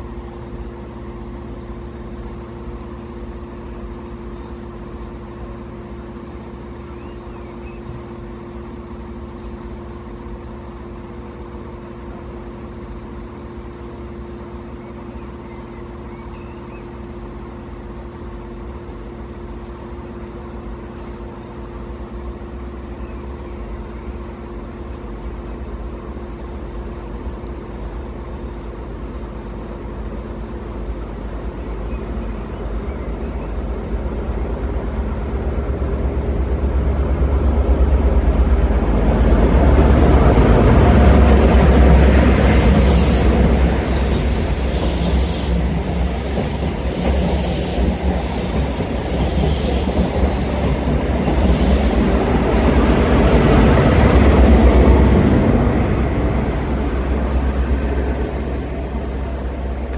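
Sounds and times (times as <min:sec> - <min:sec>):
large vehicle engine humming: 0:52.4 - 0:59.9.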